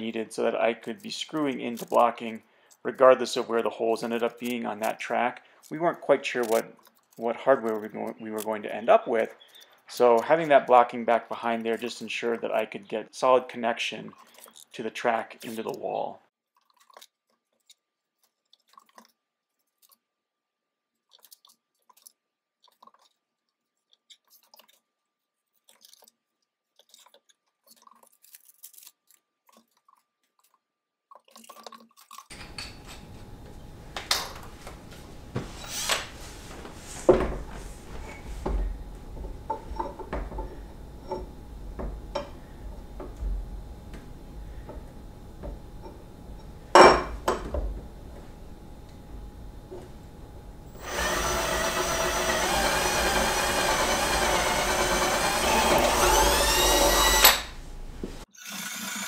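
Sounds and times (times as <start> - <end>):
knocks and metallic clinks: 32.3 - 34.4
room noise: 32.3 - 58.3.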